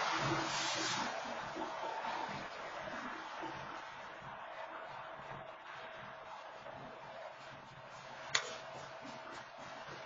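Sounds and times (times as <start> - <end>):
train wheels hissing on rails: 0.0 - 1.2.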